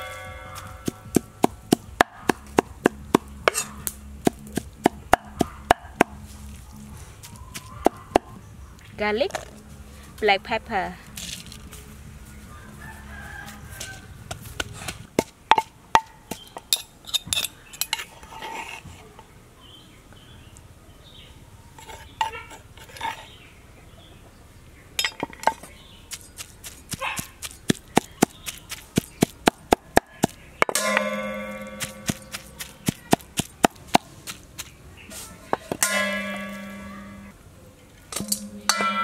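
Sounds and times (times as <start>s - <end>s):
chickens clucking: 0.0s - 8.9s
cleaver chopping on wooden board: 0.6s - 3.6s, 4.2s - 6.2s, 26.9s - 34.7s
rooster crowing: 12.4s - 14.5s.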